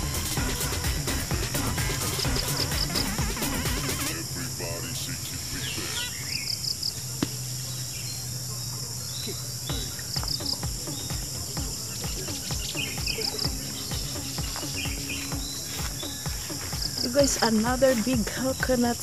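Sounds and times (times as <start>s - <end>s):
background music beat: 0.0s - 4.3s, 9.7s - 19.0s
insects droning: 0.0s - 19.0s
quick chirping call: 5.4s - 19.0s.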